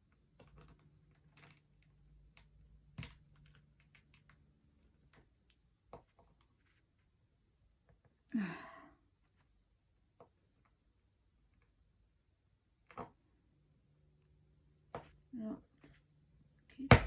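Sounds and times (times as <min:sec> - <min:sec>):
plywood pieces clicking and tapping: 0:00.3 - 0:06.2
person sighing: 0:08.3 - 0:09.0.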